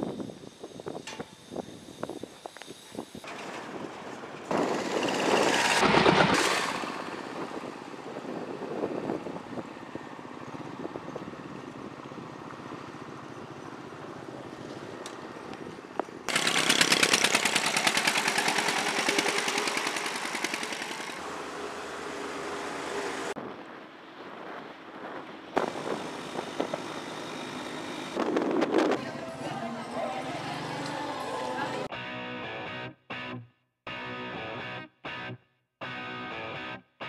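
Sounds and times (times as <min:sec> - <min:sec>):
road and wind noise: 0:00.0 - 0:31.9
motorcycle engine running: 0:16.3 - 0:21.2.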